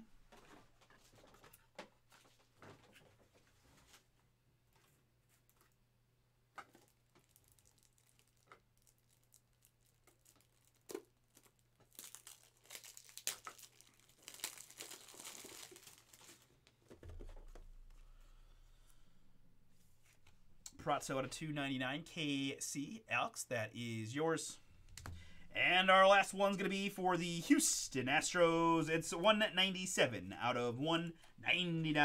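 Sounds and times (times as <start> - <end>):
plastic sleeves crinkling: 6.6 - 18.0.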